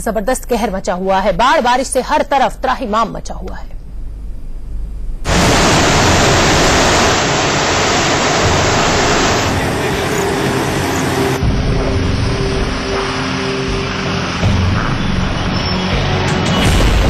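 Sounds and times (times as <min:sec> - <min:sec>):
floodwater rushing: 0:05.3 - 0:14.6.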